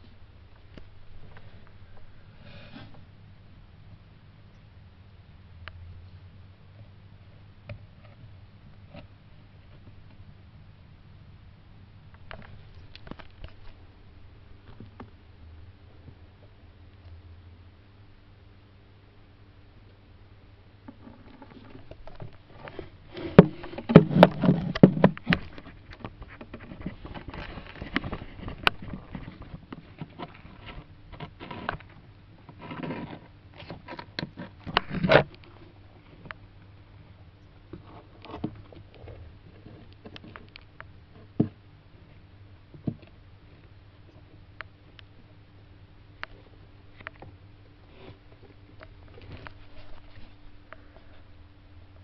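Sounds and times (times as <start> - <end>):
faint steady hum: 0.0 - 52.0
tortoise shells scraping on stones: 20.9 - 36.4.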